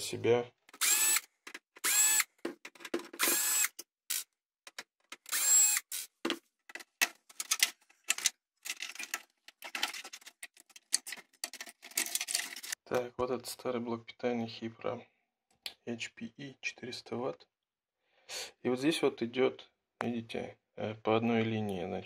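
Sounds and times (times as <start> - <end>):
cordless drill whirring: 0.8 - 2.3, 3.2 - 3.8, 5.3 - 6.1
metal parts clicking and rattling: 6.7 - 12.8.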